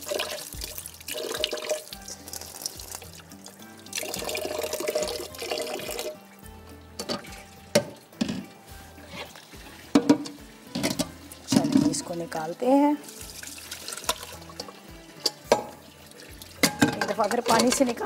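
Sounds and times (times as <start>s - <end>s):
tap water running into sink: 0.0s - 6.2s, 9.2s - 18.0s.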